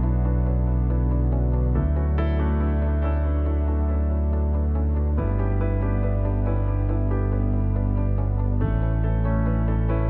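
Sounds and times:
soft new-age chords: 0.0s - 10.0s.

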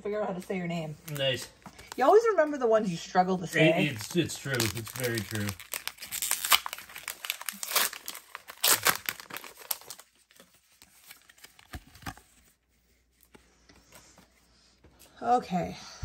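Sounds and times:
cards rustling: 0.9s - 2.1s, 3.8s - 14.3s
foil wrapper crinkling and tearing: 3.8s - 12.4s.

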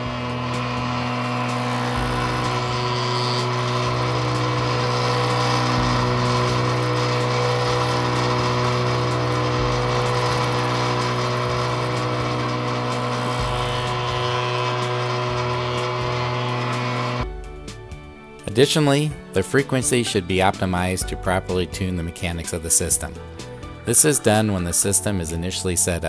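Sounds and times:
polishing machine humming and buzzing: 0.0s - 17.3s.

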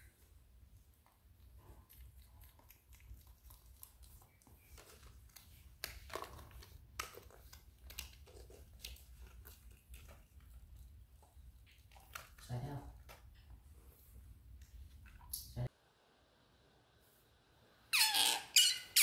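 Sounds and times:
plastic toys clicking and crinkling: 4.7s - 9.2s.

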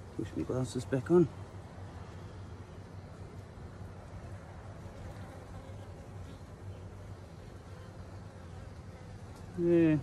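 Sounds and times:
bees buzzing: 4.0s - 10.0s.

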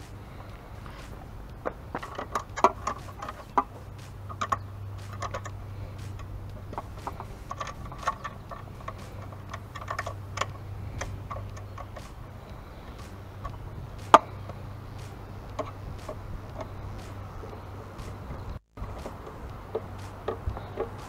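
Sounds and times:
low steady hum: 0.0s - 21.0s
light clicks and taps of parts: 1.5s - 14.6s.

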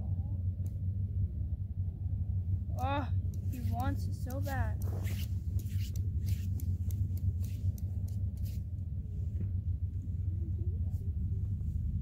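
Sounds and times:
steady low rumble: 0.0s - 12.0s
faint clicks: 3.2s - 8.5s
rustling: 3.4s - 10.1s.

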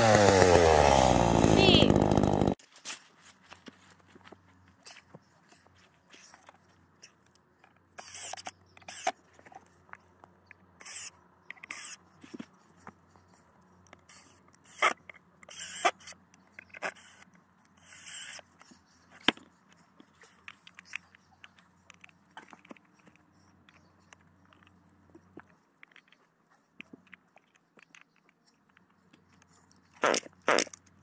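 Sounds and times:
logs scraping in dry leaves: 0.0s - 5.1s.

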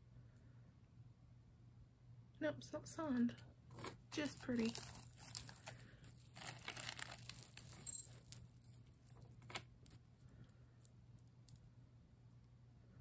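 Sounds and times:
plastic bags crinkling: 3.7s - 9.6s
metal chains clinking: 6.9s - 8.4s.

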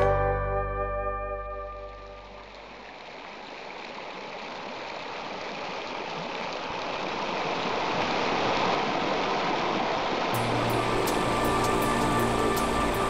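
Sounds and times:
music: 0.0s - 2.3s, 10.4s - 13.0s
creek water rushing over rocks: 2.0s - 13.0s.

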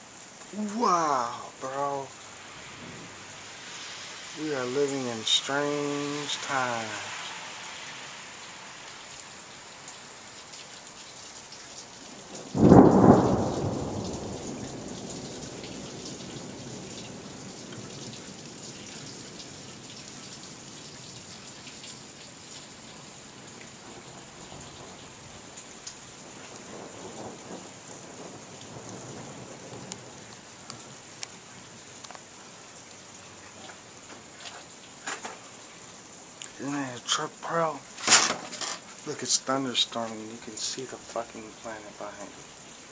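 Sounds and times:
steady rain: 0.0s - 42.9s
thunderclap rumbling: 12.3s - 18.3s, 26.2s - 30.9s.

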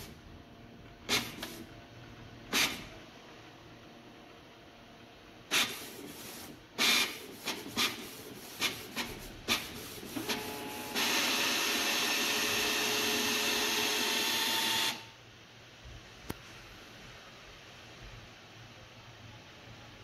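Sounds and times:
printer mechanism clicking and running: 5.5s - 15.1s.

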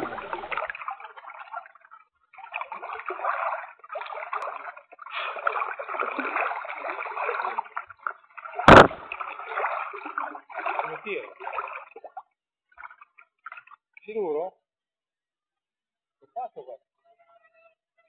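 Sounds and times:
river water sloshing and splashing: 0.0s - 13.9s
sharp loud knock: 8.7s - 9.1s.

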